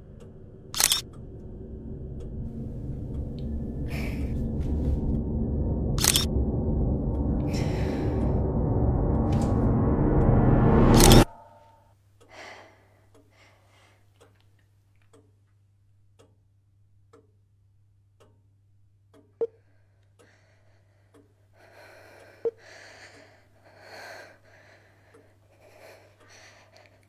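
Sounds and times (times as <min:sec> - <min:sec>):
sharp clicks: 0:00.7 - 0:01.2, 0:06.0 - 0:06.3
woman breathing heavily: 0:12.3 - 0:14.1, 0:19.8 - 0:27.0.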